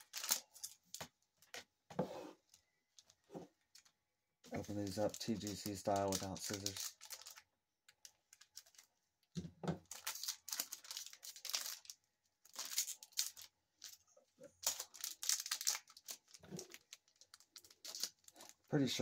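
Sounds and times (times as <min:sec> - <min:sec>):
card pack wrapper tearing: 0:00.0 - 0:01.0, 0:04.5 - 0:07.4, 0:09.8 - 0:19.0.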